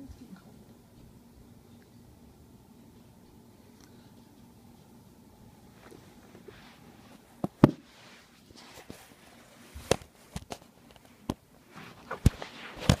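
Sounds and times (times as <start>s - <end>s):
faint rustling: 5.6s - 13.0s.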